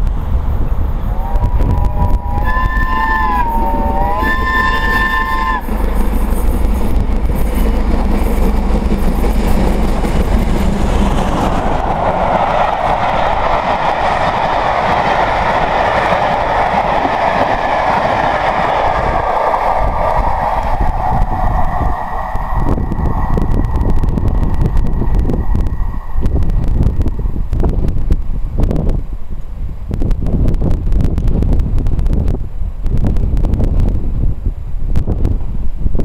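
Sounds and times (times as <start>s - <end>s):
train wheels running on rails: 0.0s - 35.8s
steam locomotive whistle: 1.1s - 6.5s.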